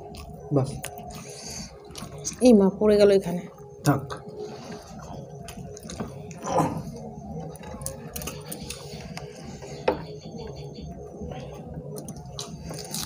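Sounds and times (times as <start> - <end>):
chewing with mouth clicks: 0.0 - 2.4, 4.7 - 9.7, 10.4 - 13.0.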